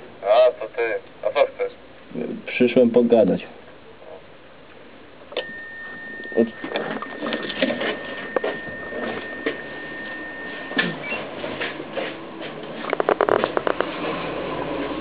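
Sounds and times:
intercom door release tone: 0:05.4 - 0:11.4
shuffling footsteps: 0:06.8 - 0:12.9.

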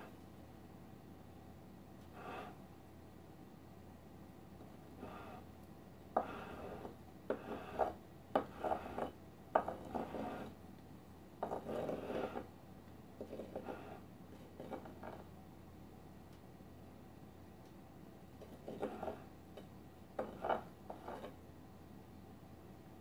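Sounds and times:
spatula scraping frosting: 0:05.0 - 0:05.4, 0:06.2 - 0:10.6, 0:11.4 - 0:12.5, 0:13.2 - 0:15.2, 0:18.4 - 0:19.3, 0:20.2 - 0:21.4.

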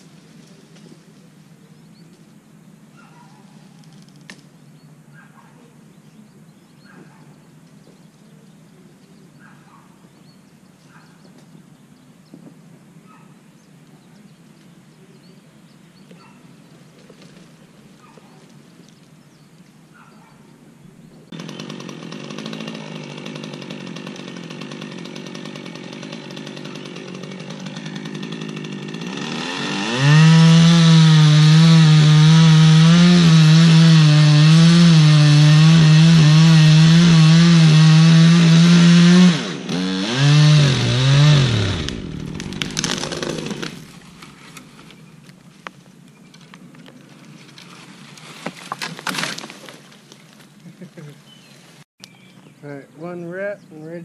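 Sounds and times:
chainsaw at full throttle: 0:21.3 - 0:44.3.

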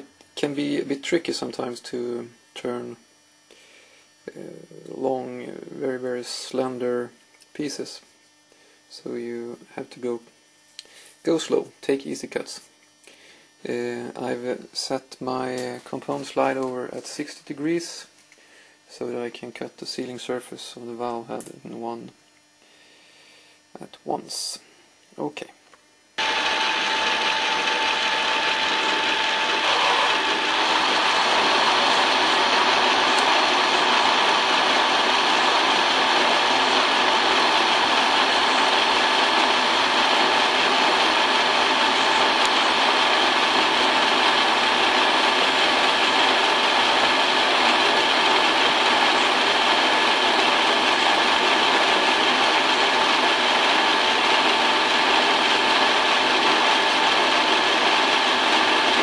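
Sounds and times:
metal lathe whine: 0:26.2 - 0:59.0.

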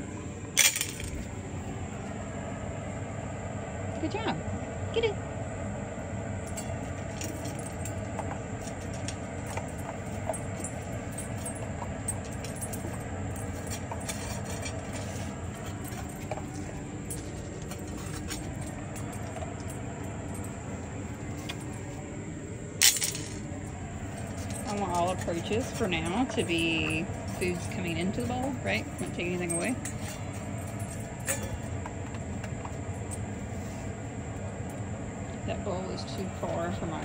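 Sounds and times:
steady background hum: 0:00.0 - 0:37.0
dog tags clinking on metal bowl: 0:06.5 - 0:21.8, 0:22.8 - 0:31.9.

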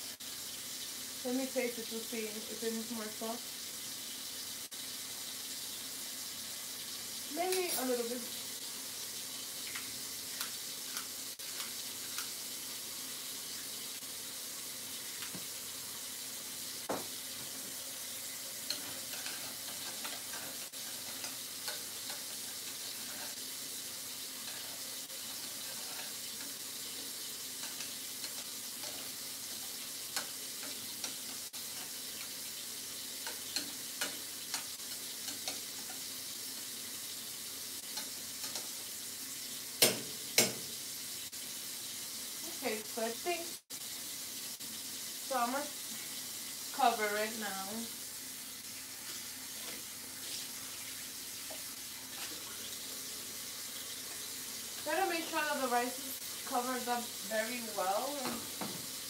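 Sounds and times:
cooking hiss: 0:00.0 - 0:59.0
spoon scraping metal pot: 0:18.7 - 0:23.4.

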